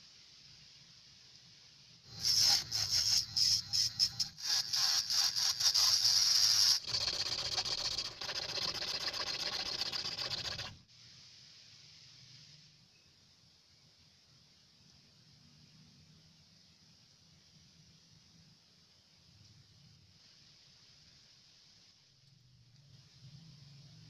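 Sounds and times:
file rasping on plastic: 2.1s - 10.8s.

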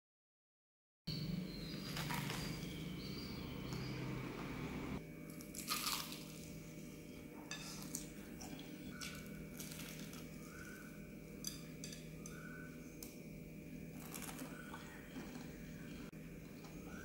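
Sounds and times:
fried chicken crunching: 5.3s - 6.6s, 8.9s - 10.7s.

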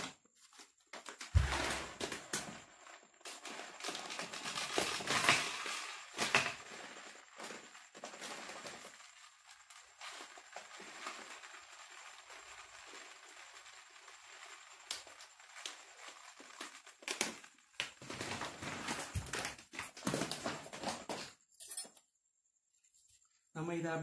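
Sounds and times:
plastic bag crinkling: 3.4s - 21.0s.

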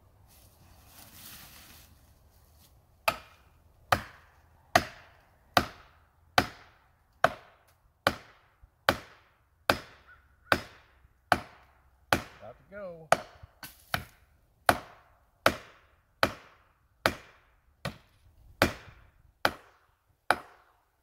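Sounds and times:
axe striking plastic wedge: 3.1s - 4.2s.

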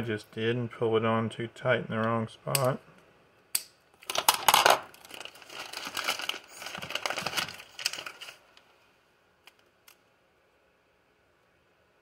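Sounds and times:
plastic bag crinkling: 4.0s - 8.6s.

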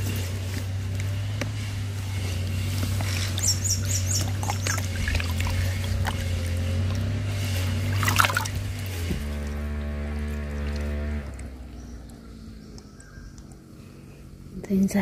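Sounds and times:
low hum: 0.0s - 15.0s
bird chirping: 3.0s - 6.3s, 11.6s - 14.4s
hand splashing in shallow water: 7.9s - 8.9s.

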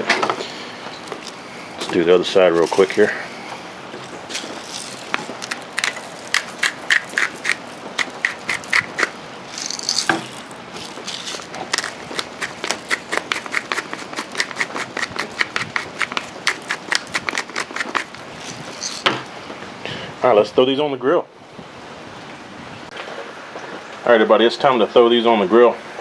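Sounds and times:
grinders cracking peppercorns: 0.4s - 19.3s.

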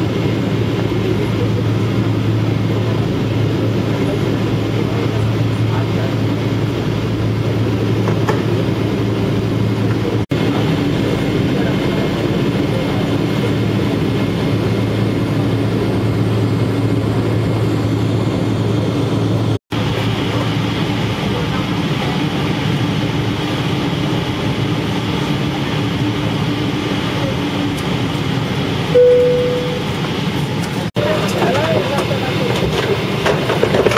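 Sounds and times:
low hum: 22.2s - 30.8s.

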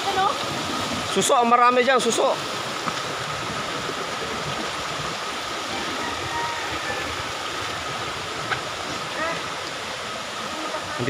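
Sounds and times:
river rushing over rocks: 0.0s - 11.0s.

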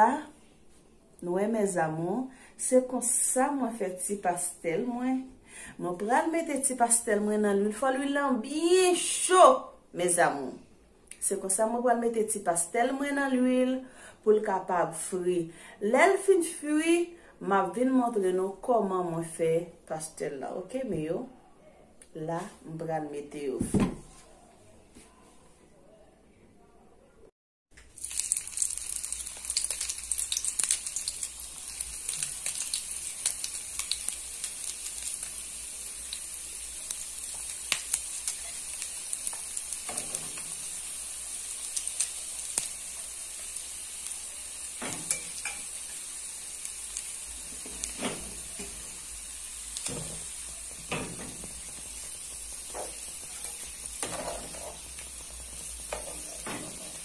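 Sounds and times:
pastries sizzling in hot oil: 27.8s - 57.0s.

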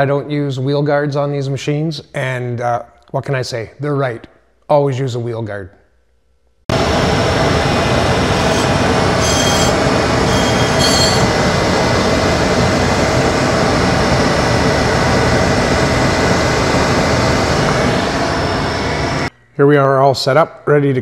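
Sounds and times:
grinder wheel grinding: 6.9s - 13.6s
high squeals: 7.0s - 17.4s.

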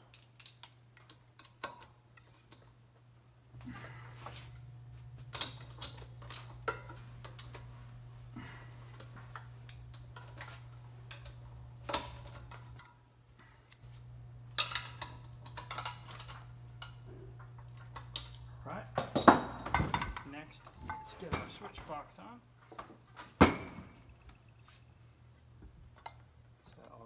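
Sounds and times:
metallic clicks and clinks: 0.0s - 2.7s, 14.5s - 19.4s
steady low hum: 0.0s - 22.7s.

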